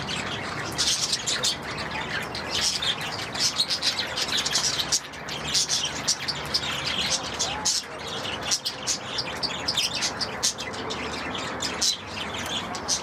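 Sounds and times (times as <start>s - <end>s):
budgerigars chirping: 0.0s - 13.0s.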